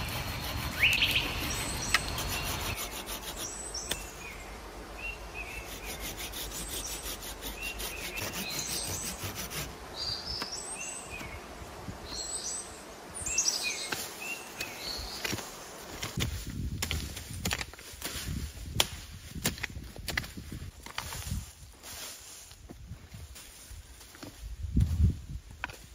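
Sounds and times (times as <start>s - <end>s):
small birds chirping: 0.0s - 15.7s
steady background hiss: 0.0s - 16.2s.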